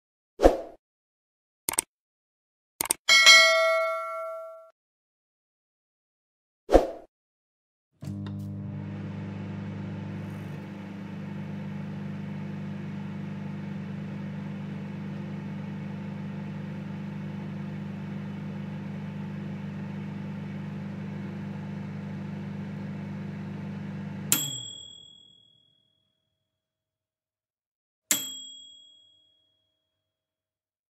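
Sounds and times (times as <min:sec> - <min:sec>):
microwave bell ding: 0:03.1 - 0:04.7, 0:24.3 - 0:25.4, 0:28.1 - 0:29.4
microwave oven humming: 0:08.0 - 0:24.6.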